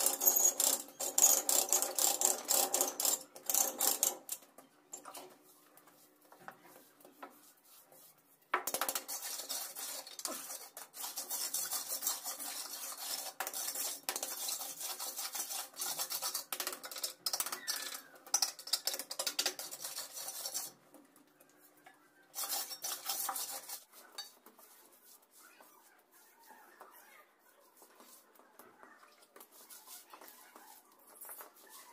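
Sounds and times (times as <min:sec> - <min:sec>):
trowel scraping gritty mix: 0:08.7 - 0:20.8, 0:22.3 - 0:25.4.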